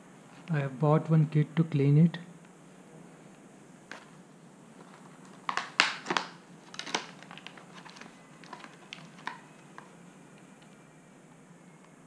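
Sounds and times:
plastic packaging crackling: 0:03.9 - 0:10.0.

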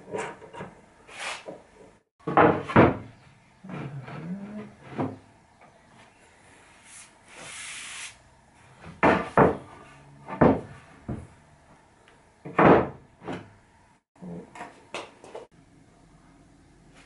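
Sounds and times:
wooden boards knocking: 0:08.8 - 0:09.6.

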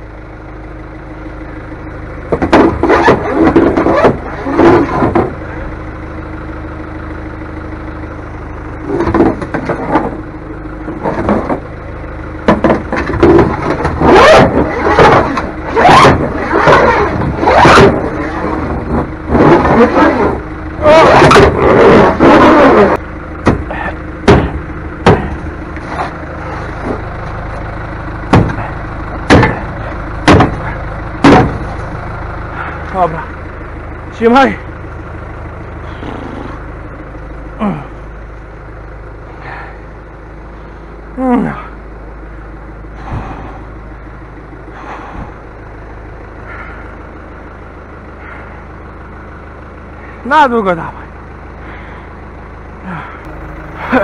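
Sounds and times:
vehicle engine idling: 0:00.0 - 0:54.0
sharp knocks: 0:12.4 - 0:14.0, 0:23.4 - 0:25.4, 0:28.3 - 0:28.6, 0:29.3 - 0:31.6
loud irregular clattering: 0:12.4 - 0:20.3, 0:28.3 - 0:31.9.

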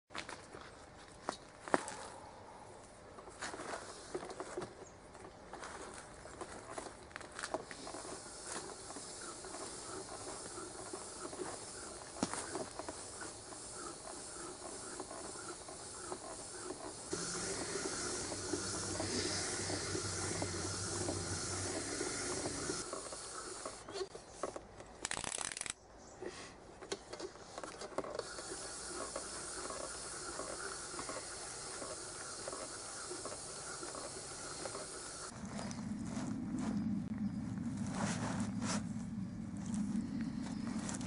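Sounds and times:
pedal exerciser whirring: 0:07.5 - 0:24.0, 0:28.0 - 0:36.6.

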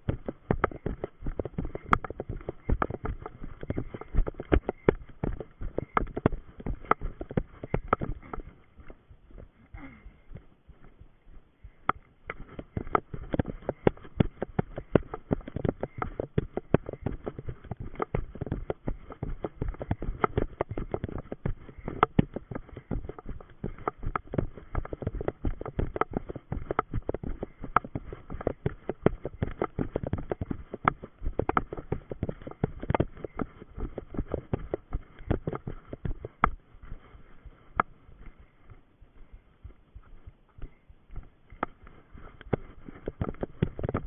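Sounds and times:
running footsteps in undergrowth: 0:00.0 - 0:44.0.

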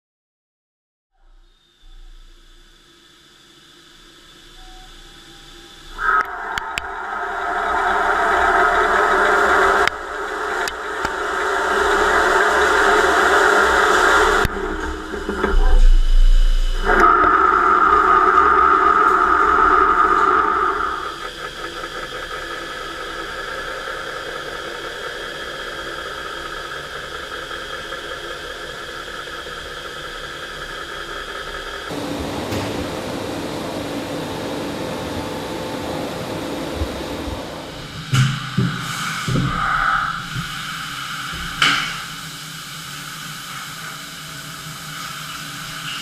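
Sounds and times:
steady machine noise: 0:01.2 - 0:46.0
steady ringing tone: 0:01.4 - 0:30.4, 0:31.2 - 0:38.0
machining centre cutting metal: 0:01.5 - 0:46.0.

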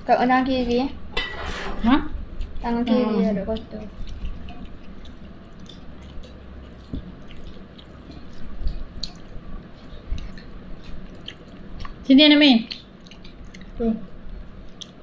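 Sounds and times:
steady low hum: 0:00.0 - 0:15.0
squishing of food by hand: 0:01.8 - 0:15.0
chewing: 0:02.4 - 0:15.0.

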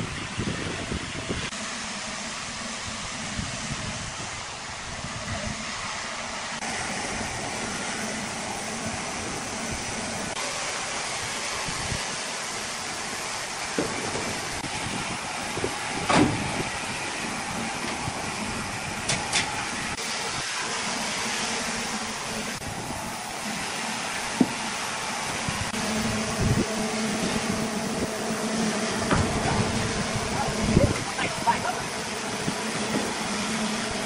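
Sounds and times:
heavy machinery hiss and rumble: 0:00.0 - 0:34.0.

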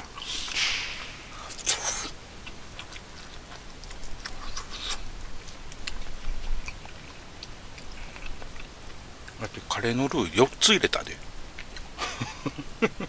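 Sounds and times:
low rumble: 0:00.0 - 0:02.8
chewing: 0:00.0 - 0:09.8, 0:11.2 - 0:12.0.

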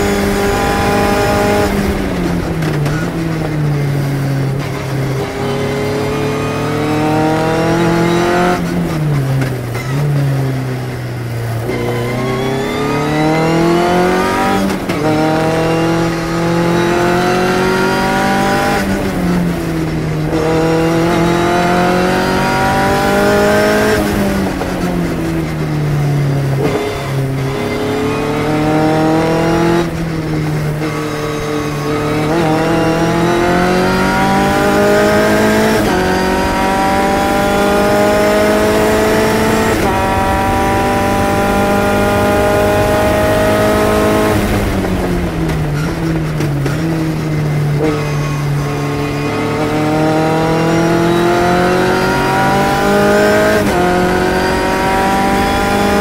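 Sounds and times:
racing car engine revving: 0:00.0 - 0:56.0
wind and road noise: 0:00.0 - 0:56.0.

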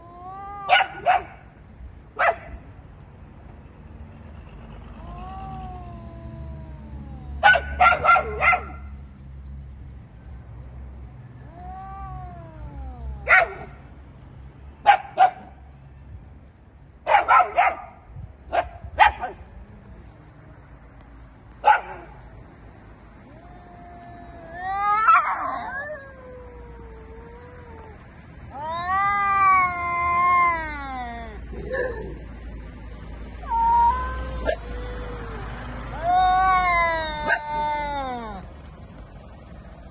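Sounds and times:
cat yowling: 0:00.0 - 0:01.3, 0:05.0 - 0:08.7, 0:11.5 - 0:13.8, 0:23.2 - 0:32.2, 0:33.4 - 0:38.5
dogs barking: 0:00.7 - 0:01.5, 0:02.2 - 0:02.6, 0:07.4 - 0:08.8, 0:13.3 - 0:13.8, 0:14.8 - 0:15.5, 0:17.1 - 0:19.4, 0:21.6 - 0:22.2.

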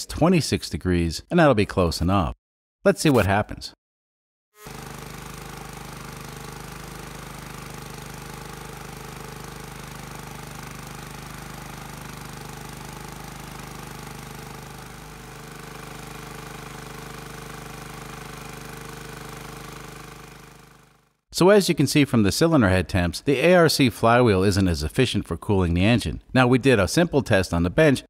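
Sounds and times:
small engine running steadily: 0:04.6 - 0:21.2.

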